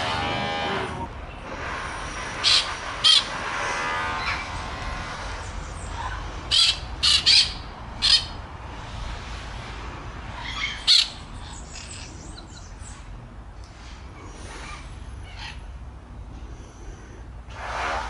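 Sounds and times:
parakeets squawking: 0:02.4 - 0:03.4, 0:05.7 - 0:08.4, 0:10.3 - 0:12.7.

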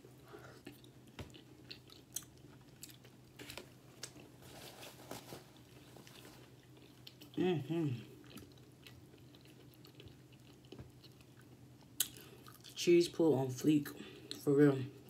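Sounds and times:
faint steady hum: 0:00.0 - 0:15.0
chewing and wet mouth sounds: 0:00.4 - 0:04.4, 0:05.2 - 0:12.8
paper napkin rustling: 0:04.4 - 0:06.4.

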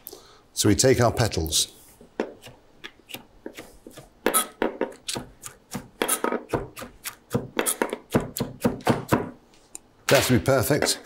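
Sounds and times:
knife chopping on cutting board: 0:03.5 - 0:09.4.

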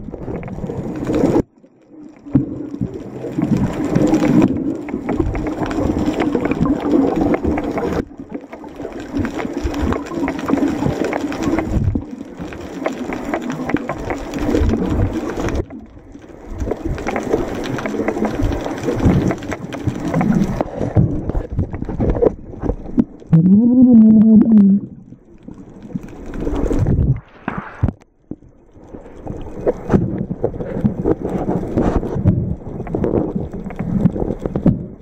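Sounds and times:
bubbling: 0:00.0 - 0:35.0
underwater water moving: 0:00.0 - 0:35.0.

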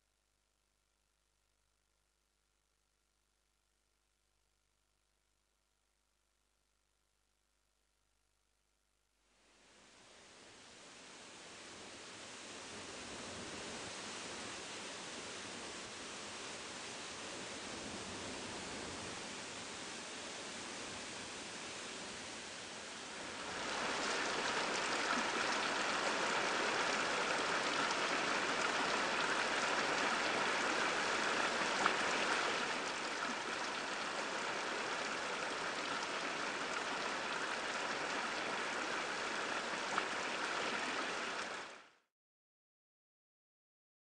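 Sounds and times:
steady rushing noise: 0:23.2 - 0:37.8.

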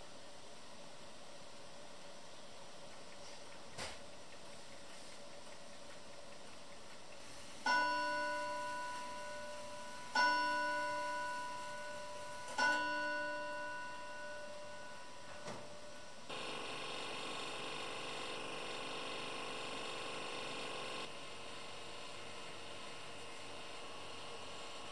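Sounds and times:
steady background hiss: 0:00.0 - 0:16.3
clock chime striking: 0:06.9 - 0:16.3.

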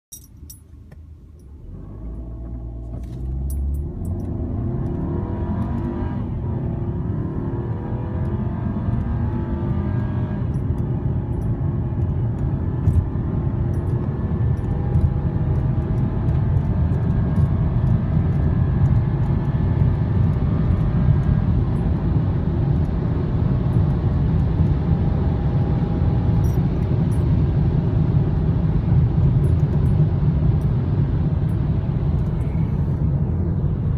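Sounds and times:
wind and road noise: 0:00.1 - 0:33.9
car engine accelerating: 0:01.1 - 0:33.9.

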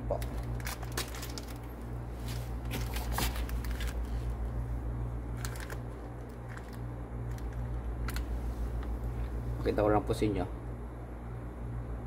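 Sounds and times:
steady low hum: 0:00.0 - 0:12.0
plastic wrapping crinkling: 0:00.1 - 0:04.4, 0:05.3 - 0:08.3.

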